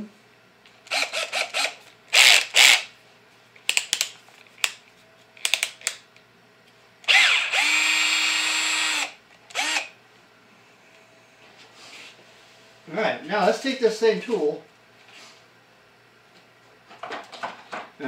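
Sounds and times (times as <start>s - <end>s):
cordless drill motor whirring: 0.9s - 2.9s, 7.0s - 9.9s
drill sharp clicks: 0.9s - 2.9s, 7.0s - 9.9s.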